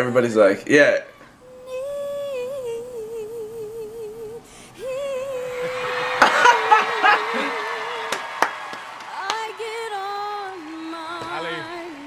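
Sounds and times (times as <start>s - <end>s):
woman singing with vibrato: 1.3s - 8.1s, 9.1s - 12.0s
audience cheering and clapping: 5.2s - 12.0s.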